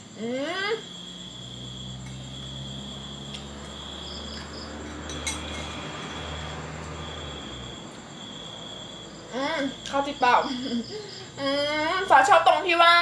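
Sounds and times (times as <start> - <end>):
crickets trilling: 0.0 - 13.0
woman humming: 10.6 - 12.1.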